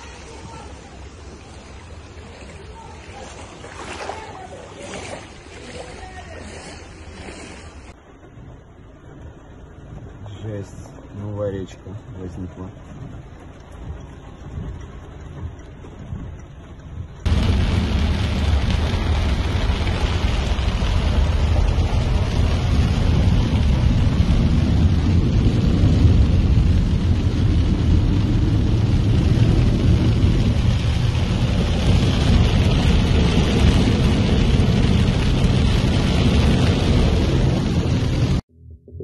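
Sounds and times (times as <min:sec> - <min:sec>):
heavy rain on a car: 0:00.0 - 0:04.0, 0:08.0 - 0:38.4
floodwater spraying from wheels: 0:00.0 - 0:38.4.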